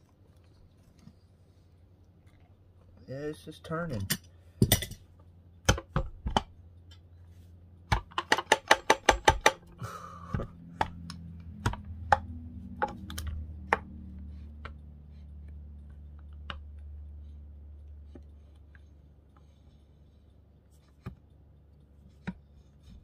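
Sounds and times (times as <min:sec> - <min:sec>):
low steady hum: 0:00.0 - 0:23.0
metal tools clicking and tapping: 0:03.9 - 0:07.1, 0:07.9 - 0:09.8.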